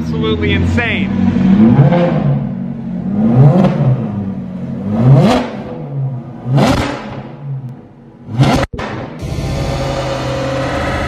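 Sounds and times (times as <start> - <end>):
car engine revving: 0.0 - 11.0.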